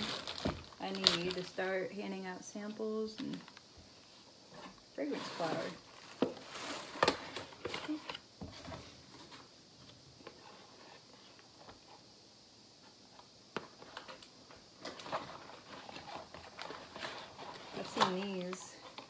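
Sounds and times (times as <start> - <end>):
packaging rustling and clicking: 13.8 - 19.0.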